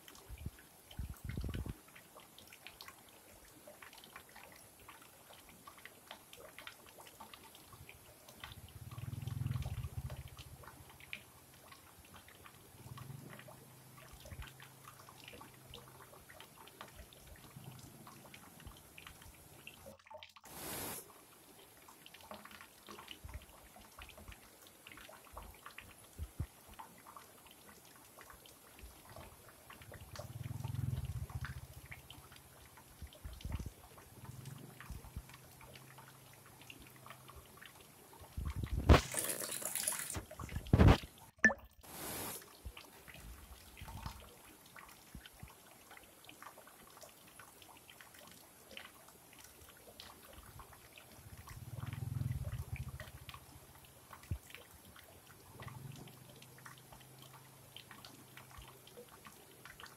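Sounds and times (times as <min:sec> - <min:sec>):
stream trickling over rocks: 0:00.0 - 0:59.9
burst of hiss: 0:20.5 - 0:21.0, 0:41.9 - 0:42.4.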